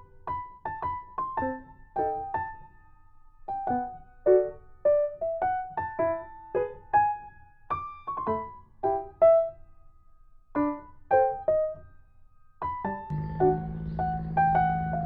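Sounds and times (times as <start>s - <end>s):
gentle piano melody: 0.0s - 15.0s.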